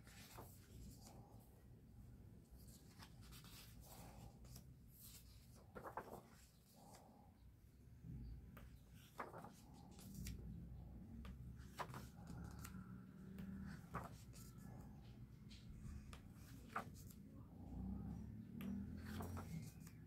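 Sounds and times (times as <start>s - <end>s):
paper rustling: 0.0s - 1.3s, 2.6s - 7.0s, 9.0s - 10.4s, 11.2s - 12.8s, 13.7s - 14.6s, 16.4s - 17.2s, 19.0s - 20.0s.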